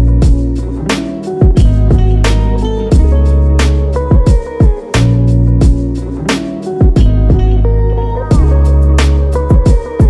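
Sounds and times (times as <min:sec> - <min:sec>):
deep steady bass: 0:00.0 - 0:00.9, 0:01.5 - 0:04.2, 0:05.0 - 0:06.3, 0:06.9 - 0:09.8
sharp beat: 0:00.0 - 0:07.6, 0:08.3 - 0:10.0
guitar: 0:00.0 - 0:10.0.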